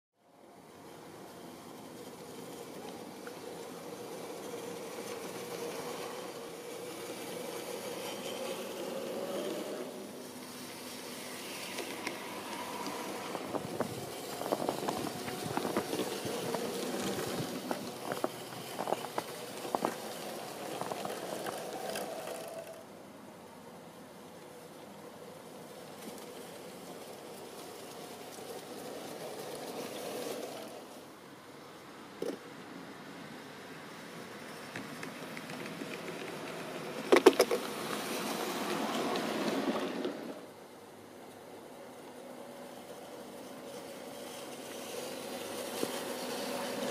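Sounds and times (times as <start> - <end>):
model train motor whining: 0.6 - 23.0, 25.4 - 31.1, 41.2 - 46.9.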